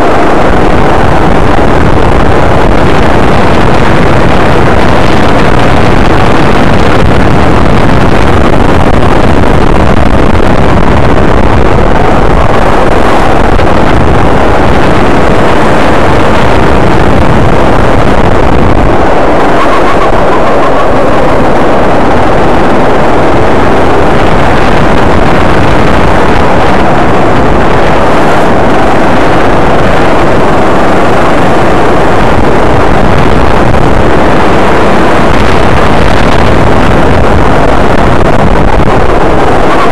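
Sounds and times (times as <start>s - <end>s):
go-kart engine running: 0.0s - 38.3s, 39.0s - 39.9s
wind rushing over microphone: 0.0s - 39.9s.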